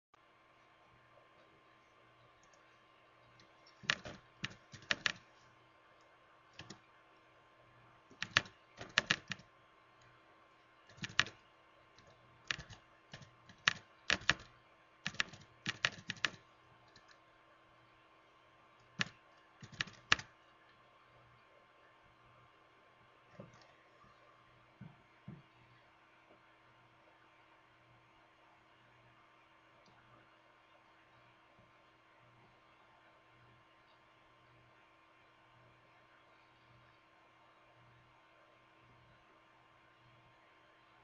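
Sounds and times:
faint steady hum: 0.2 - 41.0
keyboard keystroke clicks: 3.7 - 5.2, 6.6 - 6.8, 8.1 - 9.4, 10.9 - 11.4, 12.0 - 17.2, 19.0 - 20.3.

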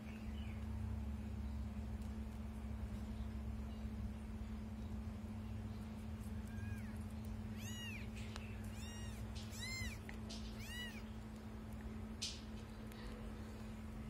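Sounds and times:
steady low hum: 0.0 - 14.0
kitten meowing: 6.4 - 11.1.

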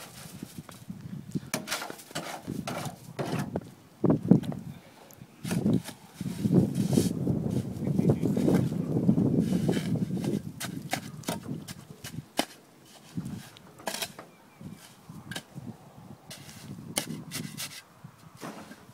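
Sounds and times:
spade scraping concrete: 1.5 - 3.6, 5.4 - 7.7, 9.4 - 15.6, 16.3 - 17.8, 18.4 - 18.9.

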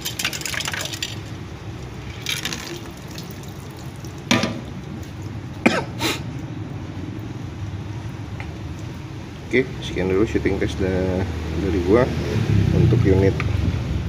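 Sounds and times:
water trickling from a can: 0.0 - 5.3.

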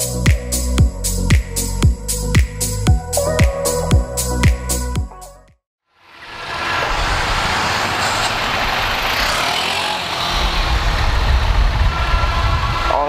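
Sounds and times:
road and wind noise: 5.9 - 13.0
motorcycle engine at low speed: 6.1 - 13.0.

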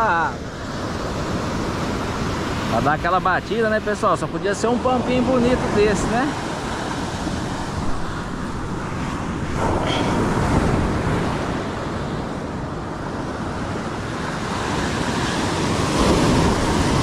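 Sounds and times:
ocean surf breaking: 0.0 - 17.0
wind noise on microphone: 5.6 - 17.0.

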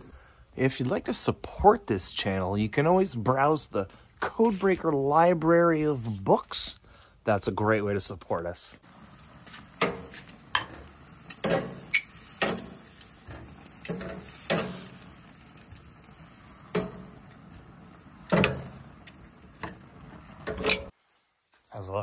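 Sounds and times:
food sizzling: 8.8 - 21.0
cooking utensil scraping and knocking: 9.8 - 14.9, 16.7 - 17.2, 18.3 - 19.0, 19.6 - 20.9.

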